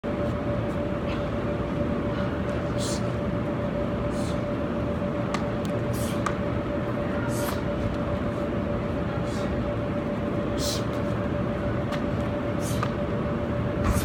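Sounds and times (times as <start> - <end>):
indoor hall rumble and hum: 0.0 - 14.0.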